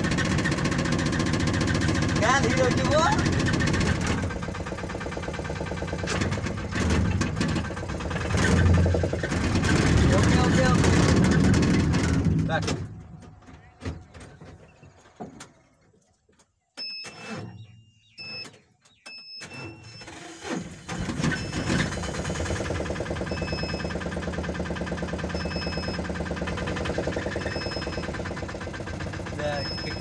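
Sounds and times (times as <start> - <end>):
car engine starting and running: 0.0 - 15.6, 18.4 - 30.0
short warning beep: 27.4 - 28.1, 29.5 - 30.0.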